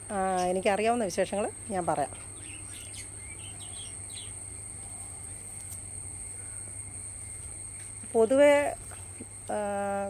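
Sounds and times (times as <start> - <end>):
insect trill: 0.0 - 10.0
bird chirps: 2.1 - 4.4.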